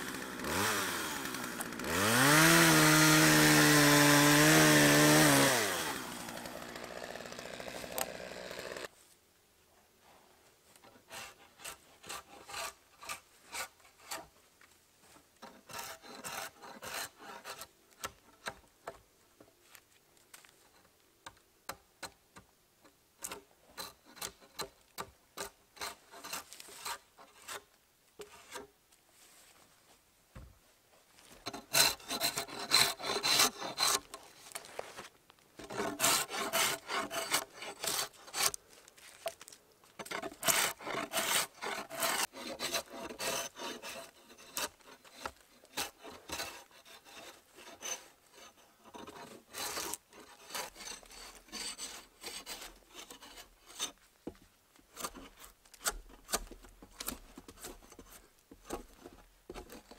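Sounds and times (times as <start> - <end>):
drawknife scraping bark: 10.8 - 14.3, 25.4 - 28.7, 31.4 - 38.6, 39.3 - 54.0, 54.9 - 59.9.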